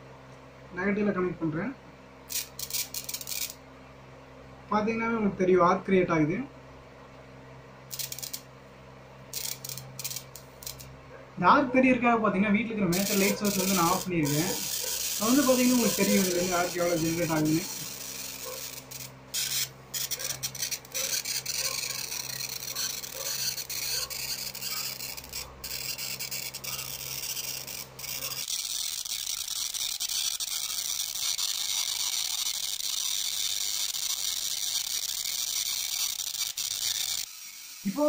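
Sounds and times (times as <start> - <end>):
electric arc sizzling: 2.3 - 3.6, 7.9 - 8.5, 9.3 - 11.0, 12.9 - 38.0.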